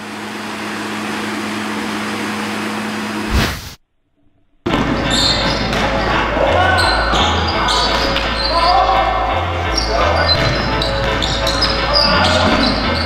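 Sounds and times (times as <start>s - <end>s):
sharp hit: 3.3s - 3.8s.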